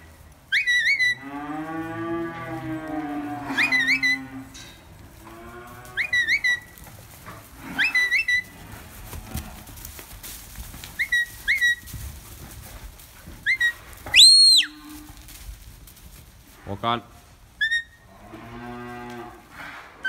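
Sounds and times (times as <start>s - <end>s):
short sharp herding whistles: 13.5s - 14.8s
long rising and falling whistle: 14.1s - 14.8s.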